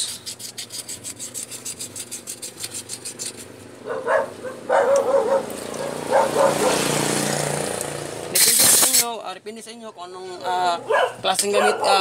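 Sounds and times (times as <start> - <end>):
sandpaper rubbing in metal bore: 0.0 - 3.6
dog barking: 3.8 - 6.9, 10.4 - 12.0.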